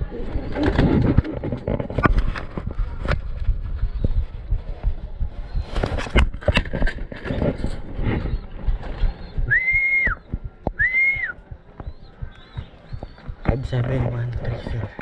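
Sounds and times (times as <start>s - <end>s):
high whistle notes: 9.5s - 10.2s.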